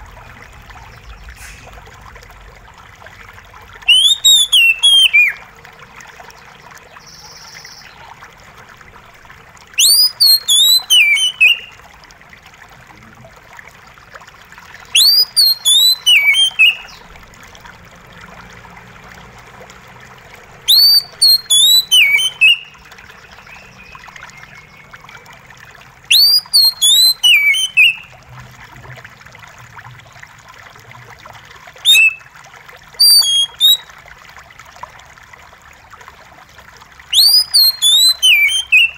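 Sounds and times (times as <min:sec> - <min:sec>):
water trickling: 0:00.0 - 0:38.9
bird singing whistled phrases: 0:03.8 - 0:05.4, 0:09.8 - 0:11.7, 0:14.9 - 0:17.0, 0:20.7 - 0:22.7, 0:26.1 - 0:28.1, 0:31.8 - 0:32.2, 0:33.0 - 0:33.9, 0:37.1 - 0:38.9.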